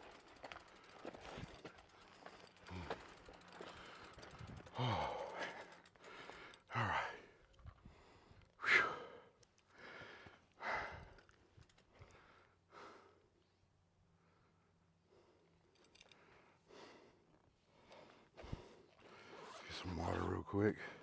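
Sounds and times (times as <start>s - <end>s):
man breathing hard: 2.2s - 13.3s, 14.2s - 19.5s.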